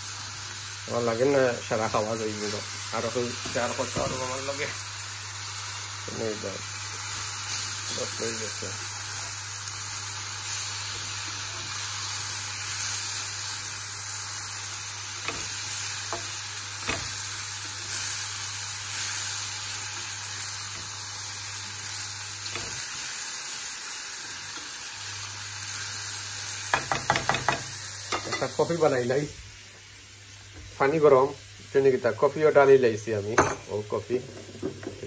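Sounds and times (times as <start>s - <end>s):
food sizzling in a frying pan: 0.0s - 35.0s
spatula knocking and scraping pan: 15.2s - 17.2s, 26.7s - 28.4s.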